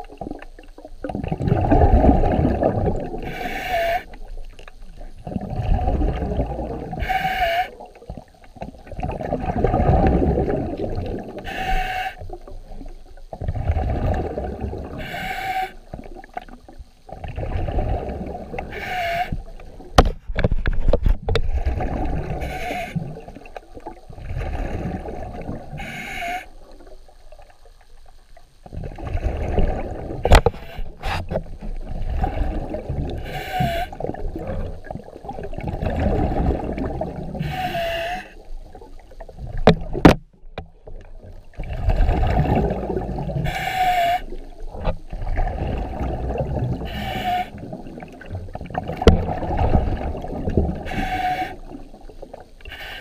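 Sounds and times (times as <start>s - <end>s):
muffled underwater churning: 0.0s - 53.0s
snorkel breathing hiss: 3.2s - 4.3s, 6.9s - 7.8s, 11.3s - 12.3s, 14.9s - 15.9s, 18.6s - 19.6s, 22.3s - 23.2s, 23.8s - 26.8s, 32.0s - 34.6s, 37.3s - 38.5s, 43.3s - 44.5s, 46.7s - 47.7s, 50.8s - 53.0s.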